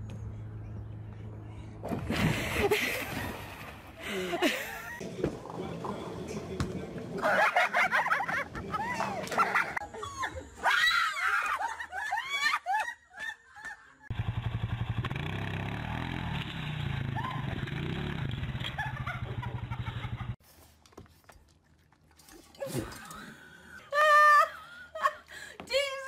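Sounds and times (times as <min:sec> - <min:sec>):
young women laughing: 0:02.1 - 0:05.0, 0:07.2 - 0:14.1, 0:18.7 - 0:20.4, 0:23.2 - 0:26.0
atv engine running: 0:14.1 - 0:20.4.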